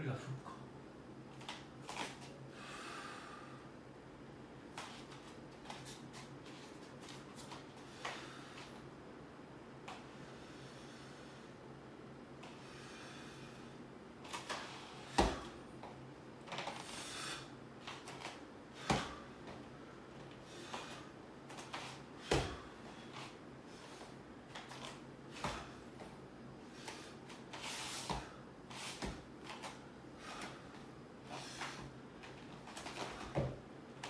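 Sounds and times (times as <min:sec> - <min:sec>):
bare feet stamping on foam mat: 0:15.1 - 0:15.6, 0:21.6 - 0:22.7.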